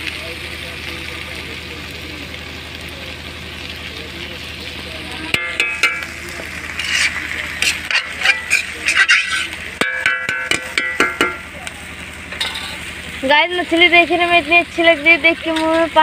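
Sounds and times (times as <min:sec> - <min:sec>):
fish sizzling in a pan: 0:00.0 - 0:16.0
metal ladle scraping pan: 0:05.3 - 0:11.5.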